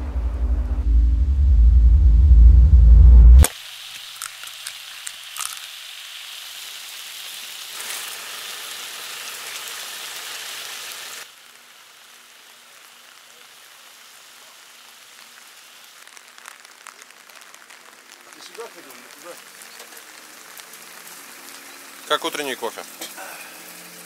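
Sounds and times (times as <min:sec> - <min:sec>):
light rain pattering: 0:03.4 - 0:24.0
eggs sizzling in a frying pan: 0:03.5 - 0:24.0
water dripping: 0:15.2 - 0:24.0.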